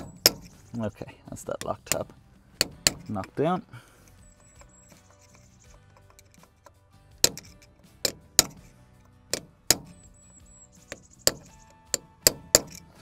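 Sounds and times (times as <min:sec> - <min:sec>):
hammer tapping metal punch: 0:00.0 - 0:00.7, 0:01.5 - 0:03.4, 0:07.2 - 0:10.2, 0:10.8 - 0:13.0
faint background music: 0:00.0 - 0:13.0.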